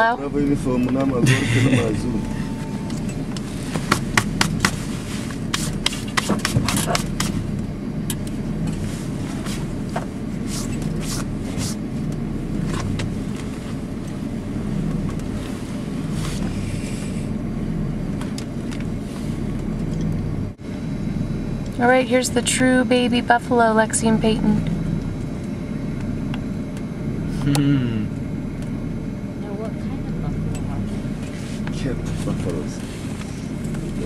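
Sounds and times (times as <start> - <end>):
engine idling: 0.0 - 34.0
sharp clicks and knocks: 2.9 - 4.8, 5.5 - 8.4.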